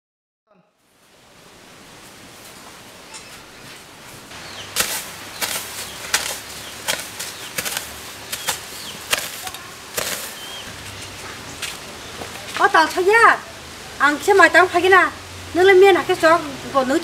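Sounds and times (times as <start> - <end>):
faint bird chirps: 4.4 - 10.7
hoe chopping into earth: 4.5 - 10.7.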